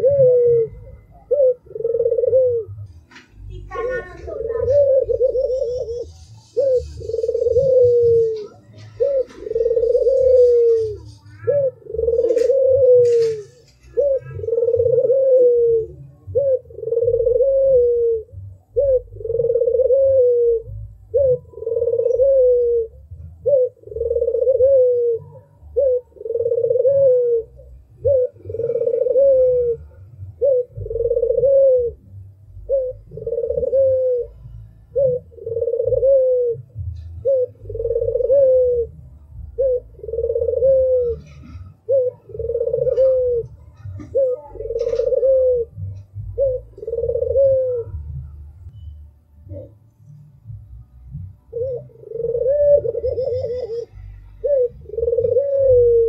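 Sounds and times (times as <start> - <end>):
dove cooing: 0.0 - 48.8, 49.4 - 56.0.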